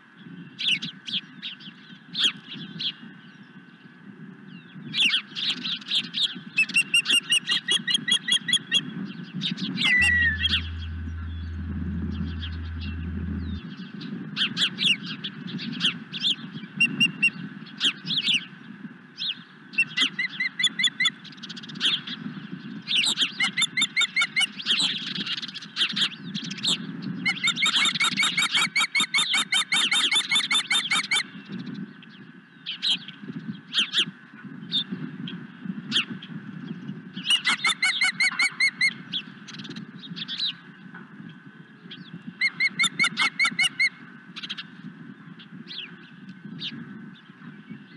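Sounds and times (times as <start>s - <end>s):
steady low rumble: 9.9s - 13.8s.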